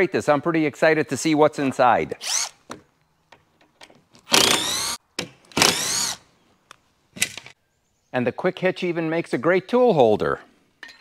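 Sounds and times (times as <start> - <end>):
cordless drill whirring: 2.2 - 2.6, 4.3 - 5.0, 5.6 - 6.2.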